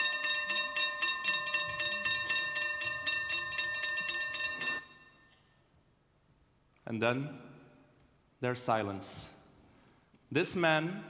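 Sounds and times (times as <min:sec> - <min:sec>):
level crossing bell ringing: 0:00.0 - 0:05.4.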